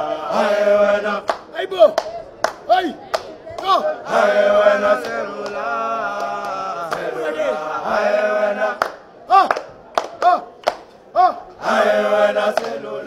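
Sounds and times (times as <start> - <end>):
claps or clicks: 1.3 - 3.7, 8.8 - 11.0, 12.5 - 12.8.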